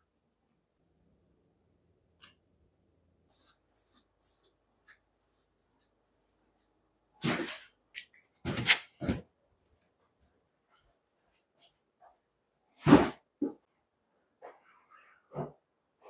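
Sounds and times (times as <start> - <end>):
footsteps in slippers: 3.3 - 6.0
cardboard boxes scraping on floor: 12.8 - 13.6.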